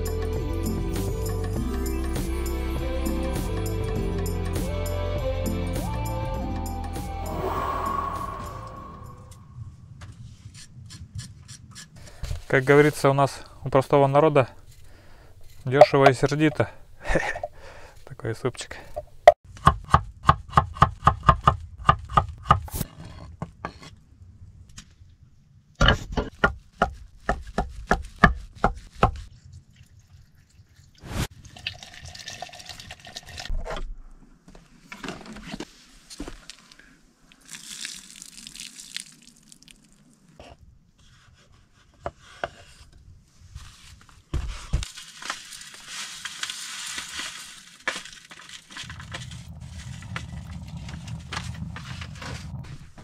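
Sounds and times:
low steady rumble: 0:48.8 - 0:53.0.

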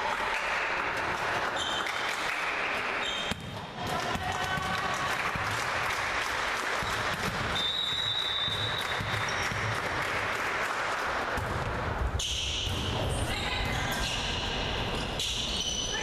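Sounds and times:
spectators applauding: 0:04.3 - 0:11.1.

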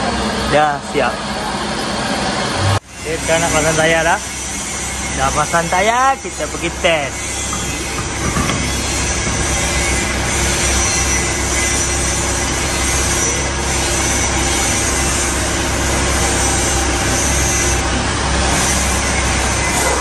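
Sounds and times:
steady workshop hum: 0:00.0 - 0:20.0
ratchet wrench rasping: 0:03.1 - 0:17.8.

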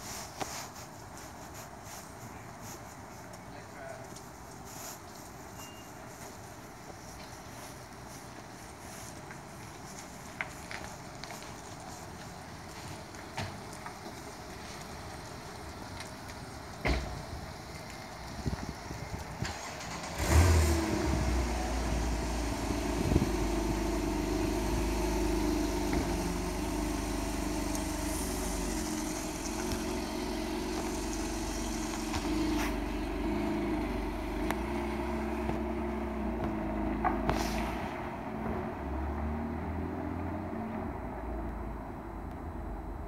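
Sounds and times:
car engine starting and idling: 0:11.2 - 0:43.0.

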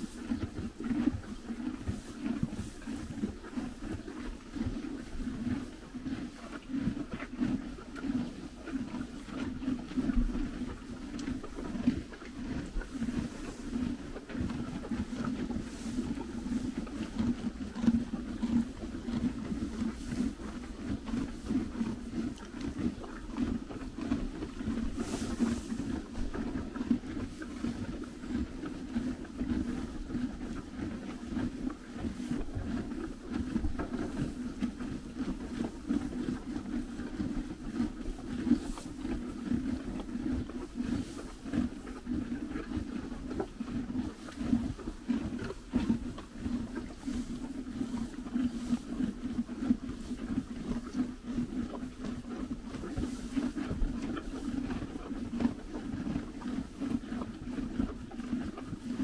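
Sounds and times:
ponies chewing hay: 0:00.0 - 0:59.0
hay rustling: 0:25.0 - 0:25.7.

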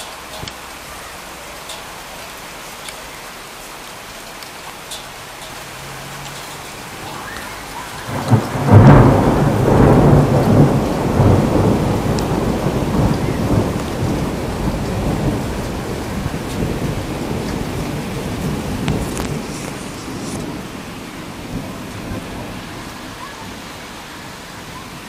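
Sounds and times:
rain falling: 0:00.0 - 0:25.0
thunder clap and rumble: 0:05.8 - 0:25.0.

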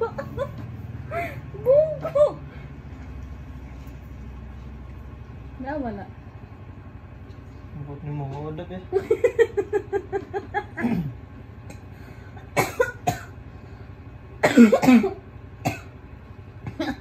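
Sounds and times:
man coughing: 0:10.8 - 0:11.2, 0:12.5 - 0:13.4, 0:14.4 - 0:15.9.

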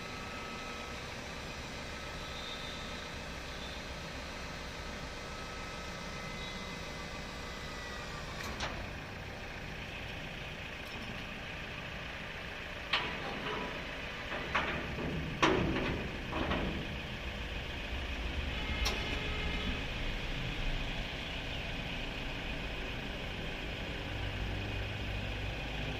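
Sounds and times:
metal clanks and knocks: 0:12.8 - 0:17.3.

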